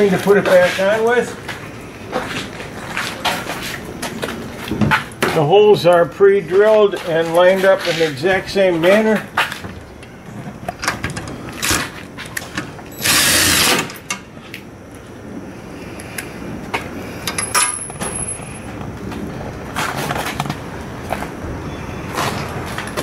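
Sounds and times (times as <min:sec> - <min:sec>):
cordless drill driving a bolt: 0:12.9 - 0:14.0.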